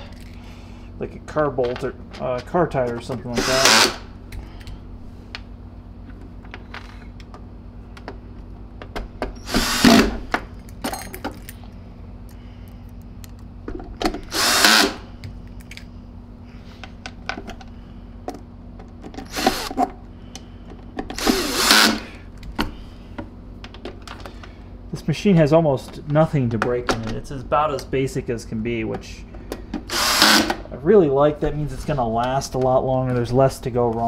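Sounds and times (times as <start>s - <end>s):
power drill driving screws: 3.3s - 4.1s, 9.4s - 10.2s, 14.3s - 15.0s, 19.2s - 19.8s, 21.2s - 22.1s, 29.9s - 30.6s.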